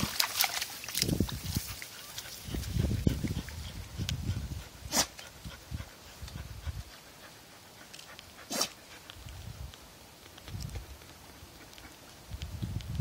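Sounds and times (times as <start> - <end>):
rustling of tall grass: 0.0 - 4.9
dog puffing breath: 1.7 - 9.2.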